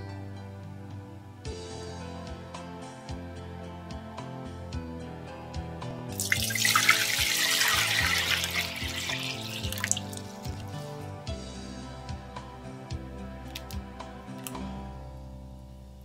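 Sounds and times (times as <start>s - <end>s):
soft background music: 0.0s - 16.0s
water pouring into saucepan: 6.2s - 10.7s.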